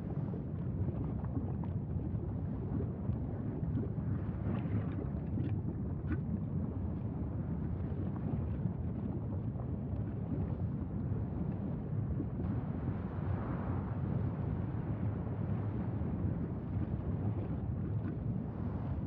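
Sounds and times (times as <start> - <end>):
lava eruption deep rumble: 0.0 - 19.0.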